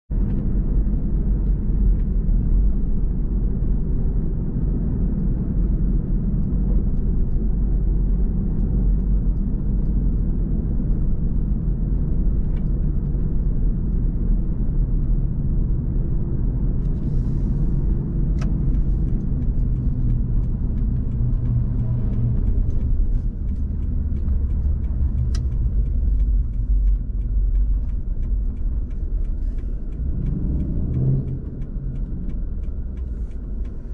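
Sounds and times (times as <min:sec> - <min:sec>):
car interior engine and tyre rumble: 0:00.1 - 0:33.9
faint ticks: 0:16.8 - 0:33.9.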